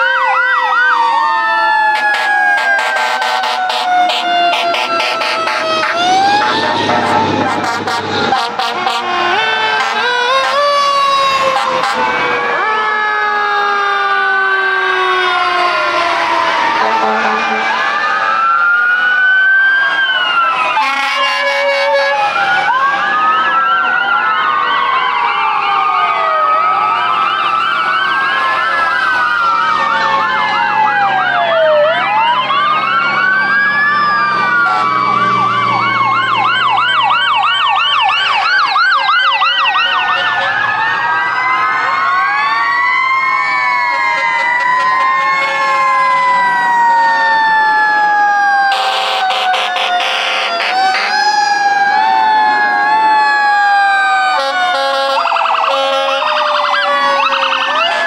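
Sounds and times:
fire engine sirens wailing: 0.0s - 58.0s
horn blasts: 2.0s - 10.7s, 11.5s - 12.1s, 16.8s - 17.7s, 20.8s - 22.2s, 34.6s - 35.0s, 48.7s - 51.2s, 54.4s - 57.3s.

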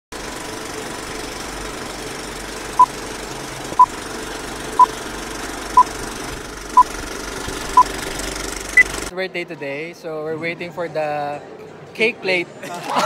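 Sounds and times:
film projector rattling: 0.2s - 9.1s.

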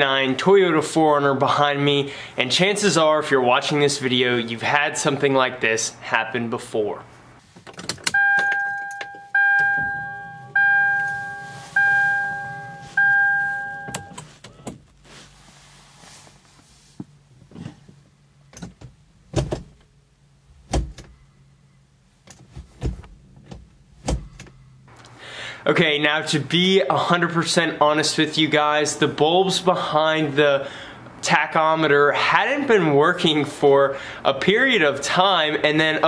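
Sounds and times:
car warning chime dinging: 8.1s - 14.3s.

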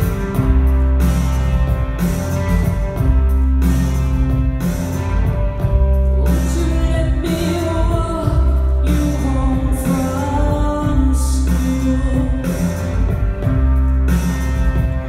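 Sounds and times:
rock band playing: 0.0s - 15.0s
person singing: 6.0s - 13.2s.

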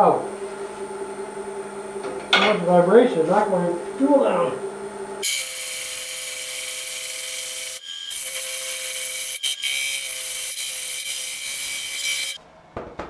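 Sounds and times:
gouge cutting wood on lathe: 5.2s - 12.4s.

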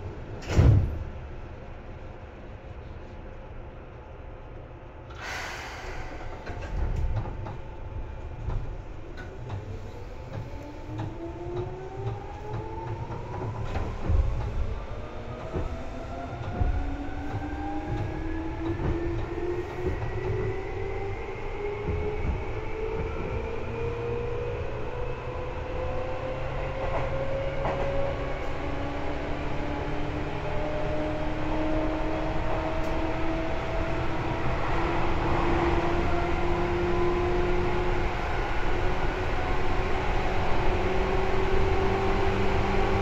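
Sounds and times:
wheel and rail rumble: 0.0s - 43.0s
air hiss: 5.1s - 6.4s.

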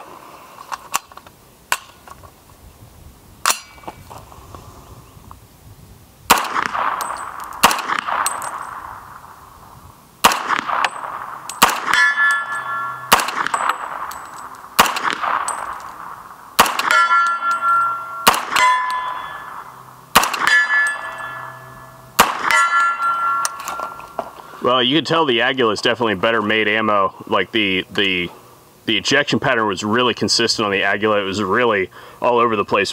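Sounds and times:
steel plate target ringing: 3.5s - 3.9s, 6.6s - 9.1s, 10.4s - 24.2s
carbine gunshots with echo: 6.3s - 9.5s, 10.2s - 24.3s.

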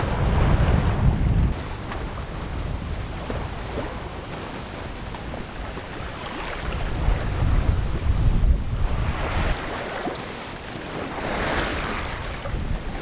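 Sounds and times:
sea water washing along hull: 0.0s - 13.0s
wind buffeting microphone: 0.0s - 13.0s.

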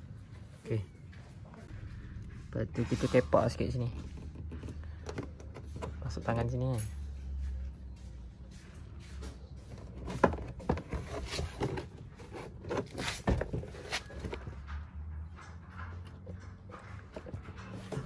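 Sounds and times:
plastic scraping: 9.6s - 14.7s.

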